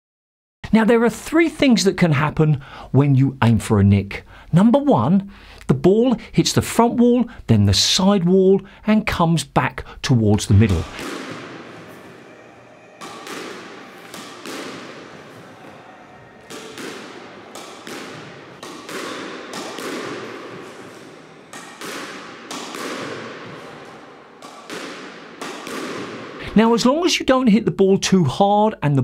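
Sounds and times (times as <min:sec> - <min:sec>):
squash ball hits echoing: 0:10.6 - 0:26.4.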